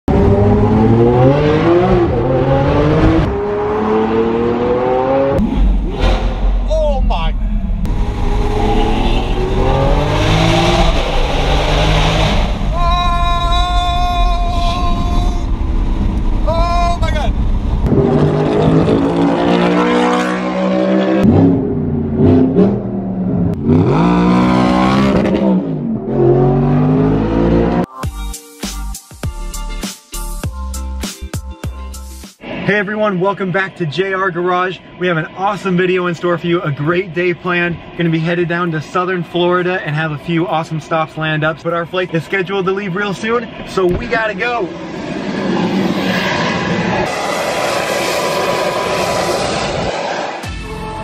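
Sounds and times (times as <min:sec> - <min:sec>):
car engine accelerating hard: 0:00.1 - 0:06.6, 0:07.7 - 0:12.8, 0:17.3 - 0:27.9, 0:44.7 - 0:50.5.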